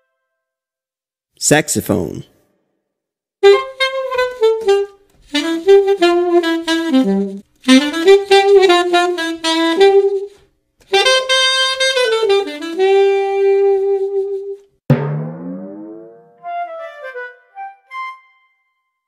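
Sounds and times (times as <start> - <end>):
solo saxophone melody: 3.4 - 14.6.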